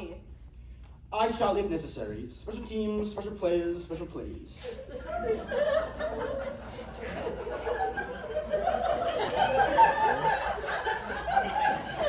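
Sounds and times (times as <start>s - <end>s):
people laughing: 4.6s - 12.0s.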